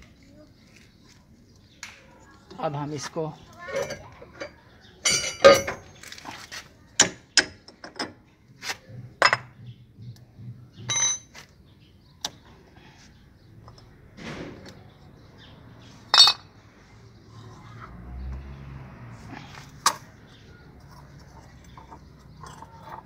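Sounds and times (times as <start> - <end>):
metal spring clinking: 3.7 - 6.0.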